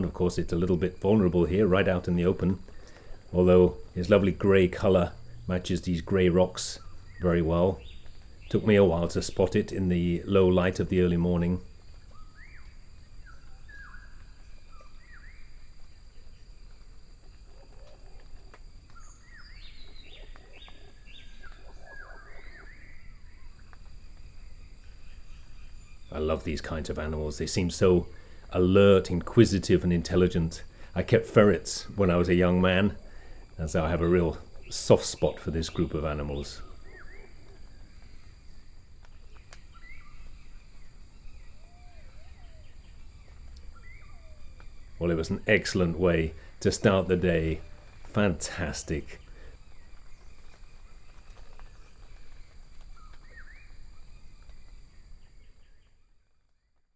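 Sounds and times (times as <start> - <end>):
high insect drone: 0.0 - 56.6
birds whistling calls: 11.9 - 16.4, 18.8 - 28.6, 31.8 - 56.1
faint sharp clicks: 39.0 - 39.9.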